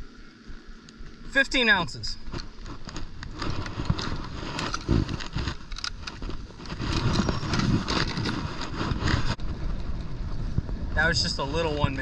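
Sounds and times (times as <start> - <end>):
steady rushing noise: 0.0 - 12.0
handling clicks and knocks: 2.3 - 9.2.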